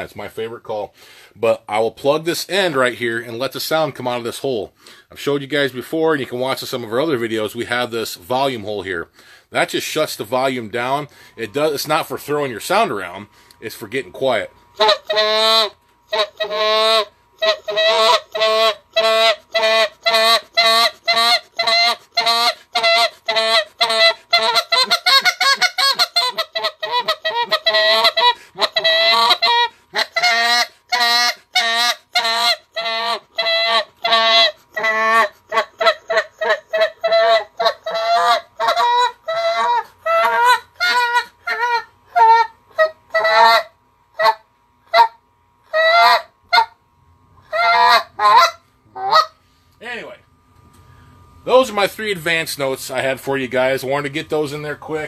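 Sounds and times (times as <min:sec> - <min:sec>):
goose call honking notes: 0:14.8 - 0:45.2, 0:47.5 - 0:49.4.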